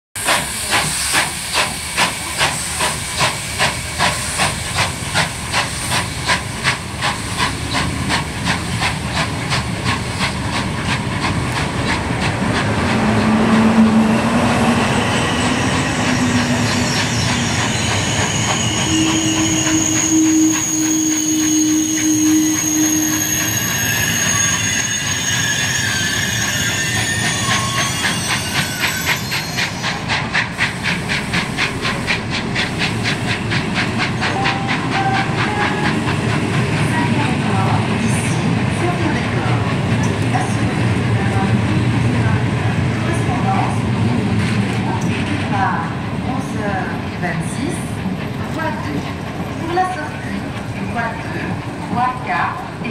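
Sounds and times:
rail-joint clicks: 0.2s - 13.9s
hissing steam: 0.2s - 41.5s
steam locomotive chuffing: 0.2s - 52.9s
long squealing tones: 13.2s - 30.0s.

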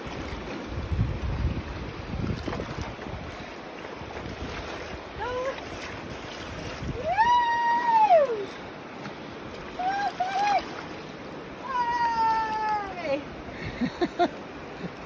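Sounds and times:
wind buffeting microphone: 0.0s - 10.9s
water sloshing and splashing: 0.0s - 15.0s.

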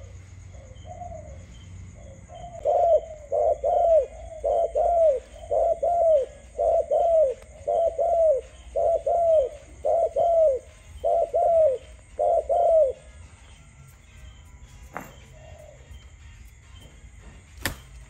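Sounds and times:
dove cooing: 0.0s - 13.3s, 14.9s - 16.0s.

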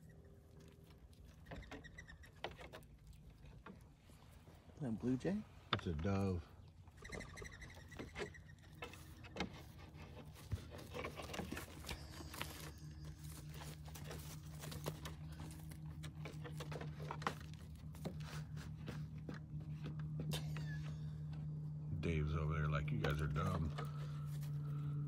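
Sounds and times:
muzzles in feed bowls: 0.0s - 21.1s
steady low hum: 0.0s - 25.0s
goat hooves clicking and knocking: 7.0s - 21.5s.

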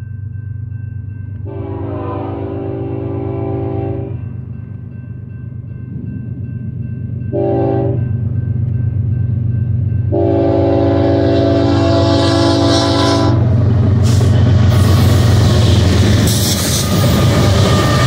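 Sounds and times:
diesel locomotives rumbling: 0.0s - 18.0s
train wheel noise passing: 0.0s - 18.0s
train horn blasts: 1.4s - 4.2s, 7.3s - 8.1s, 10.1s - 14.9s.

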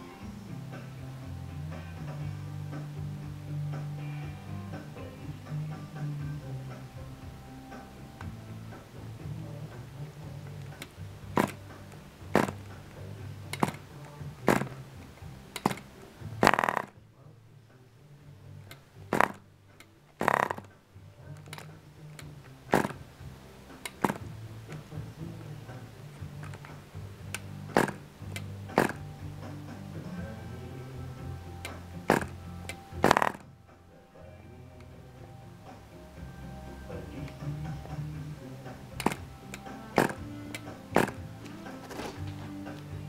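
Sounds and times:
model engine popping: 15.6s - 17.0s, 20.2s - 20.7s, 33.0s - 33.4s, 39.0s - 41.3s.

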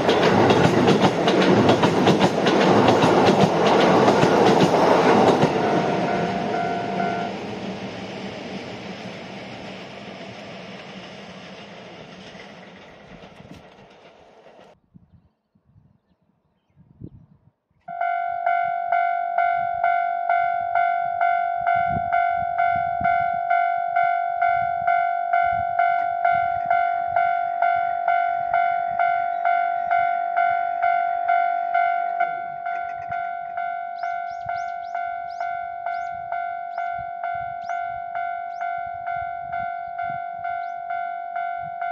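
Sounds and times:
level crossing warning bell: 0.0s - 7.8s, 17.9s - 41.9s.

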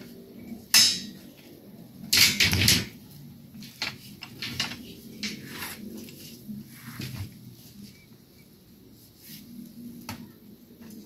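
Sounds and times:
metal bars clanking: 0.8s - 1.2s, 2.1s - 2.9s.

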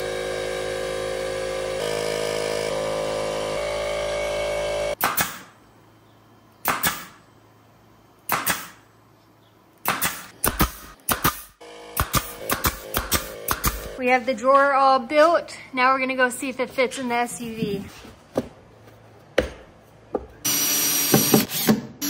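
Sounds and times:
pneumatic nailer firing: 0.0s - 5.6s, 6.6s - 7.2s, 8.3s - 8.8s, 9.8s - 14.0s, 20.5s - 22.0s.

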